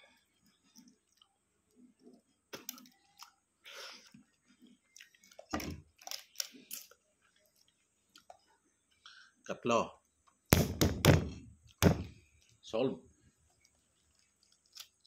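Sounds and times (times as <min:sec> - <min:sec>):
egg shell crackling: 0:04.2 - 0:08.5, 0:13.4 - 0:15.0.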